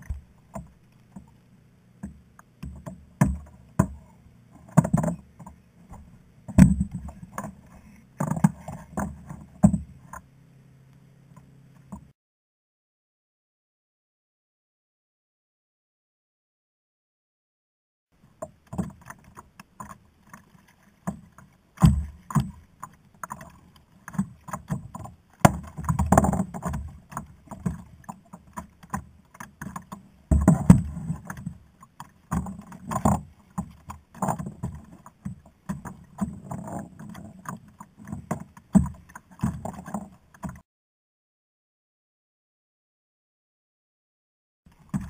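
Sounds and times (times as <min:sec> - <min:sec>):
gear knocking on plastic kayak: 0:00.0 - 0:01.3, 0:02.0 - 0:10.2, 0:18.4 - 0:40.6, 0:44.7 - 0:45.0
water against hull: 0:00.0 - 0:12.1, 0:18.2 - 0:40.6, 0:44.7 - 0:45.0.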